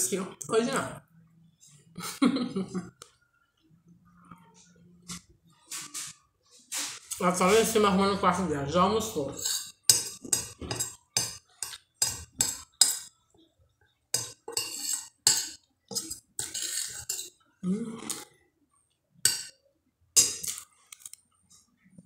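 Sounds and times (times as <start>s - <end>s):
metal spoon clinking on glass bowl: 9.4s - 13.1s, 14.2s - 17.4s, 20.2s - 20.6s.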